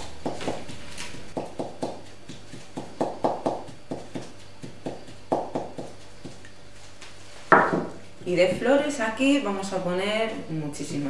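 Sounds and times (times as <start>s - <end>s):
pestle pounding in ceramic mortar: 0.0s - 6.5s, 7.5s - 8.7s.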